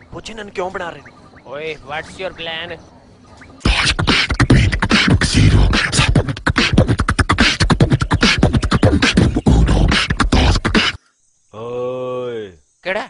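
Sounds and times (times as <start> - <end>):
person beatboxing: 3.6 - 11.0.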